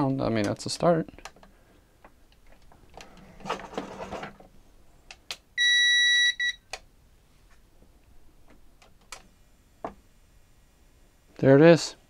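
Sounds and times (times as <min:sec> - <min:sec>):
high-pitched buzzer beep: 0:05.6 - 0:06.6.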